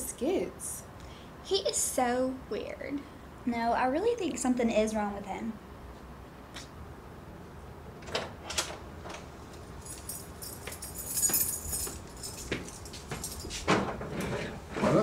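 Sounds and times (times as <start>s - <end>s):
high metallic jingle: 9.7s - 13.6s
footsteps: 9.8s - 14.4s.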